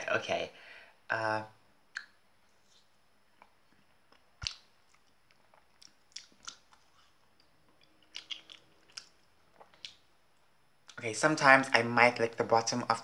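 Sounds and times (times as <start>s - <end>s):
biting frozen ice cream bar: 3.4s - 7.2s, 7.8s - 10.0s.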